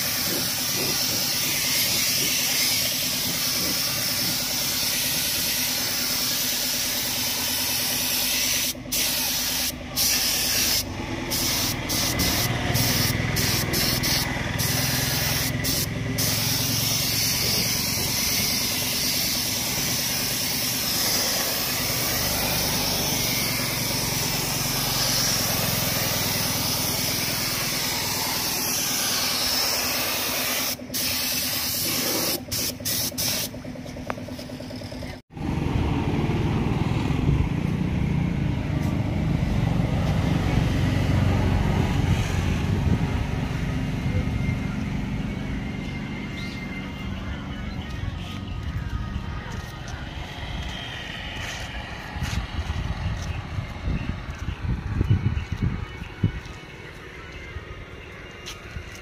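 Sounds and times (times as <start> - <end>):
paint spray gun hissing: 0.0 - 33.6.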